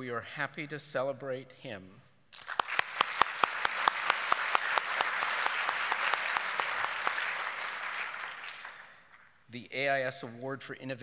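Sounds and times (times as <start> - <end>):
audience applause: 2.4 - 9.3
sharp claps close by: 2.4 - 9.4.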